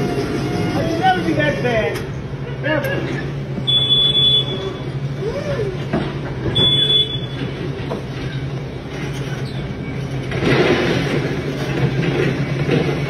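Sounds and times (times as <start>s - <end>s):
high-pitched warning beeps: 3.6s - 5.0s, 6.5s - 7.5s.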